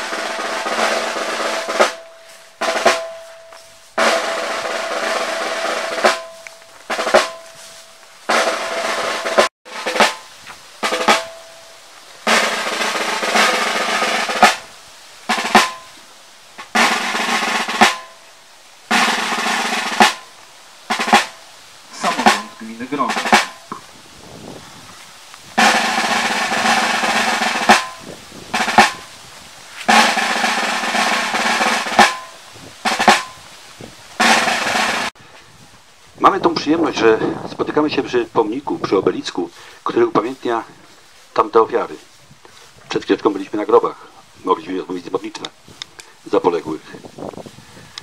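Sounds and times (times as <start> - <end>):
snare drum rolls: 0.0 - 7.6, 8.3 - 11.6, 12.2 - 14.7, 15.3 - 16.0, 16.6 - 18.2, 18.9 - 20.3, 20.9 - 23.8, 25.6 - 29.2, 29.8 - 33.4, 34.2 - 35.2.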